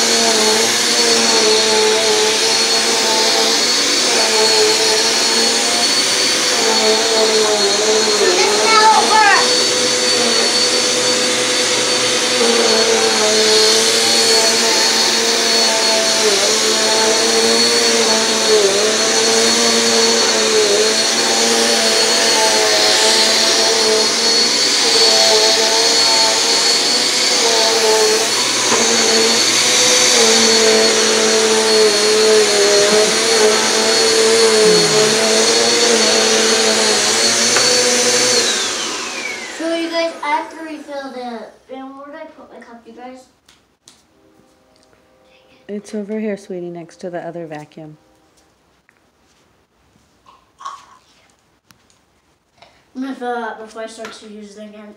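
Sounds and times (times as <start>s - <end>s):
vacuum cleaner running: 0.0s - 42.8s.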